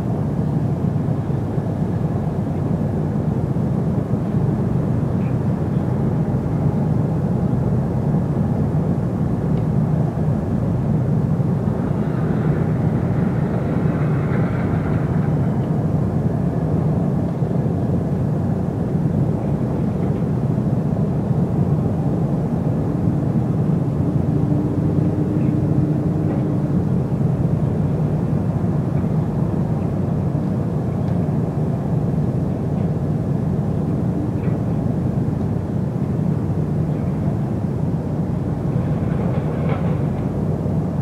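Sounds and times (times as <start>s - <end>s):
faint hum: 0.0s - 41.0s
low engine rumble: 0.0s - 41.0s.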